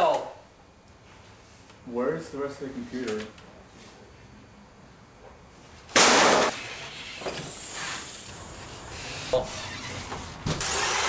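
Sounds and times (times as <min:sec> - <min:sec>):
hissing noise: 0:06.5 - 0:11.0.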